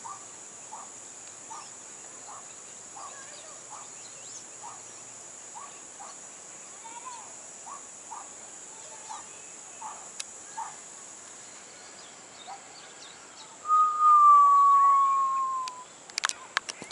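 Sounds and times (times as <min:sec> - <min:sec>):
insect drone: 0:00.0 - 0:16.9
bird chirps: 0:11.8 - 0:15.9
loud clear whistle: 0:13.6 - 0:15.9.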